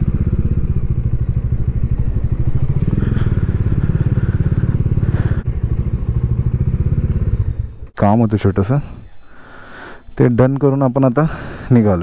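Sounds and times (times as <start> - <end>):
single-cylinder engine running: 0.0 - 7.9.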